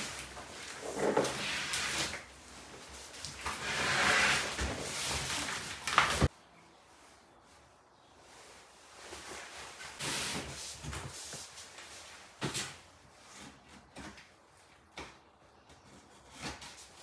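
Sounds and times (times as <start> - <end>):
cardboard box scraping and rustling: 3.2 - 5.8.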